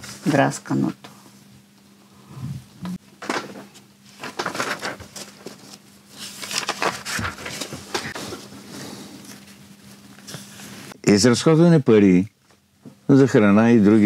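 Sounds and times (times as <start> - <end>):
paper rustling and crackling: 3.3 - 8.5.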